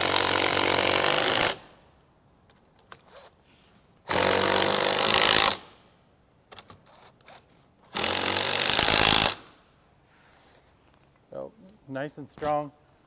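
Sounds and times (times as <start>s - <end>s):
cordless drill driving bolts: 0.0s - 1.8s, 4.1s - 5.7s, 6.5s - 9.6s.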